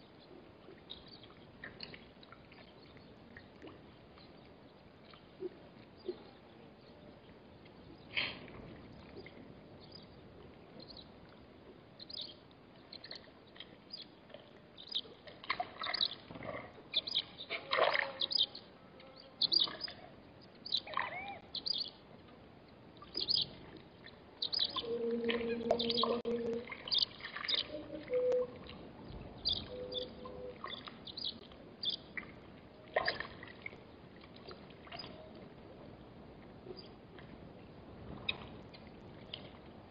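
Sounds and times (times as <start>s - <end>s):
small birds chirping: 12.0s - 14.2s, 14.8s - 15.2s, 15.8s - 16.2s, 16.9s - 22.0s, 23.0s - 28.4s, 29.0s - 32.1s.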